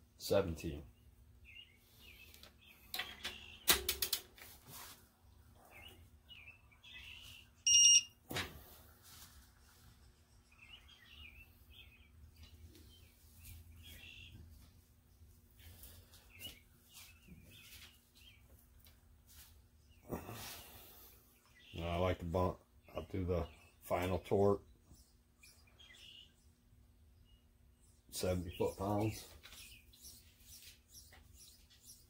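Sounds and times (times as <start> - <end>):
short electronic beep: 7.6 - 8.2.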